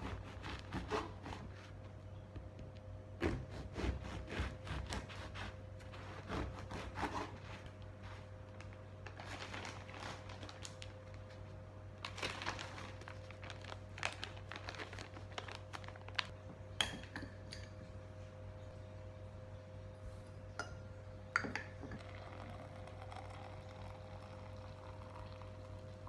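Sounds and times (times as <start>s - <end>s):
knife sawing through bread crust: 0.0s - 1.6s, 3.2s - 7.7s
plastic bag crinkling: 8.5s - 16.4s.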